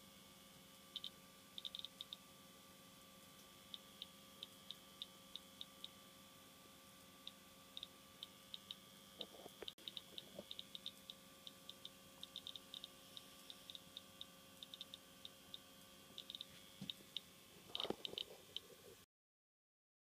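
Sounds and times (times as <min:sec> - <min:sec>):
faint steady hum: 0:00.0 - 0:19.1
radiation meter clicks: 0:01.0 - 0:02.2, 0:07.2 - 0:18.7.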